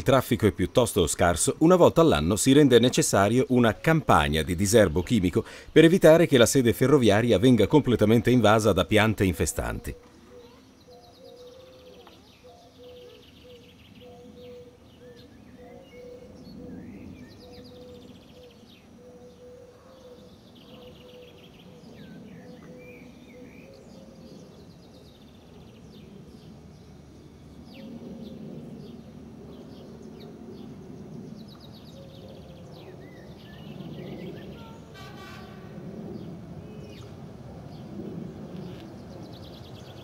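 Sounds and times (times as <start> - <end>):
songbirds chirping: 0.0 - 40.0
low train rumble: 24.3 - 40.0.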